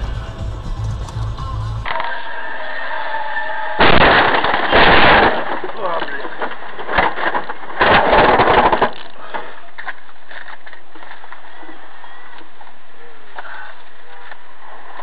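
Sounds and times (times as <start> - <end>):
truck cab noise: 0.0 - 1.9.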